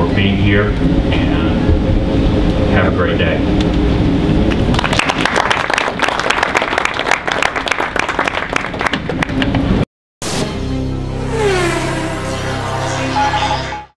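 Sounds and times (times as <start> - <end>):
crowd applauding: 4.6 - 9.6
music: 10.2 - 11.4, 12.1 - 13.9.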